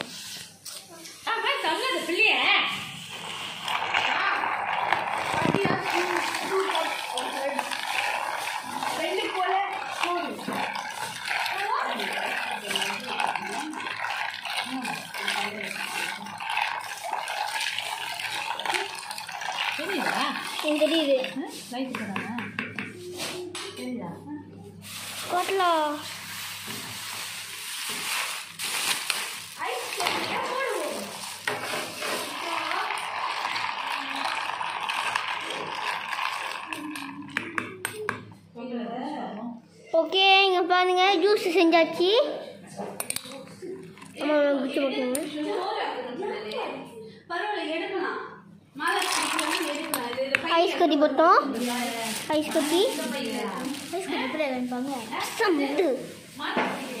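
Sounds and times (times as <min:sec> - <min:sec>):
drink sloshing: 0:02.8 - 0:22.6, 0:24.8 - 0:38.0, 0:43.0 - 0:44.4, 0:48.9 - 0:50.6
ice clinking in plastic jug: 0:03.2 - 0:21.4, 0:24.9 - 0:38.1, 0:48.8 - 0:50.7, 0:51.6 - 0:55.8
plastic bag rustling: 0:24.8 - 0:32.9, 0:51.4 - 0:57.0.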